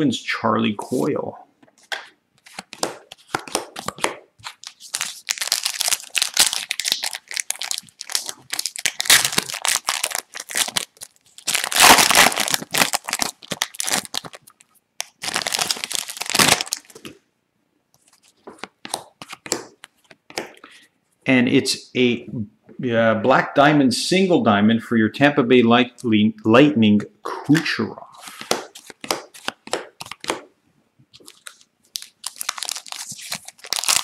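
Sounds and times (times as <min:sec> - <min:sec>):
foil wrapper crackling: 0:04.5 - 0:17.0, 0:31.2 - 0:34.0.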